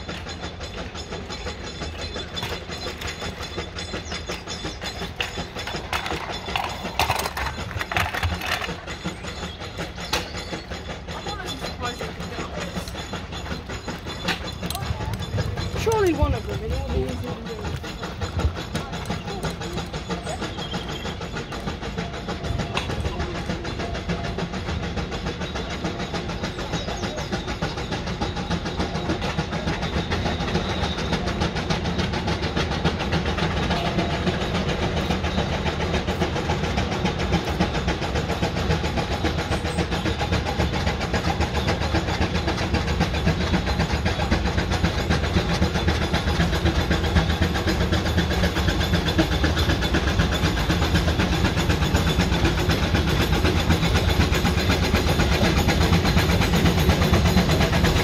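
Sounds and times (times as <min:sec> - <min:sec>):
steam roller exhaust beating: 0:00.0 - 0:58.0.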